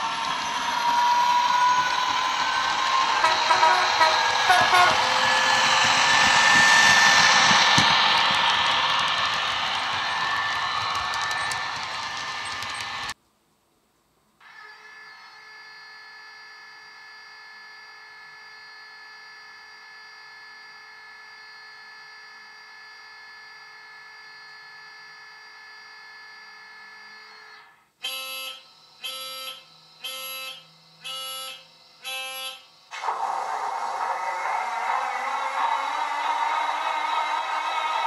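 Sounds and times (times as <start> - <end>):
steady electrical whine: 0.0 - 13.2
pulsing buzzer warning tone: 3.0 - 5.1, 28.0 - 32.9.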